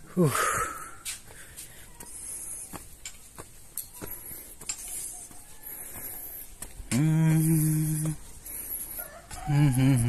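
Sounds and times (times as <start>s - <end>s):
footsteps on concrete steps: 0.0s - 10.0s
long steady call: 4.4s - 10.0s.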